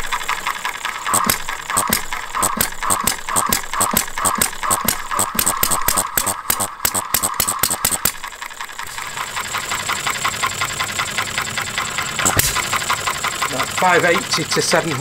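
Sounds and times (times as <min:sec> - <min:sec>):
engine firing knocks: 0:00.0 - 0:07.4
engine ticking as it coasts: 0:00.0 - 0:15.0.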